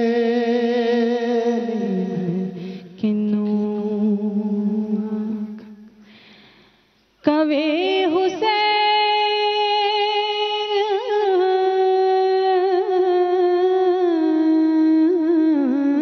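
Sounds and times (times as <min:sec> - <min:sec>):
woman singing unaccompanied: 0:00.0 - 0:05.9, 0:07.2 - 0:16.0.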